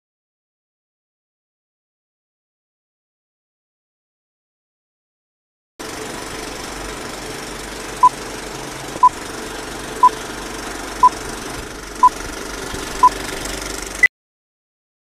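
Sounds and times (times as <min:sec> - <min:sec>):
film projector rattle and crackle: 0:05.8 - 0:14.0.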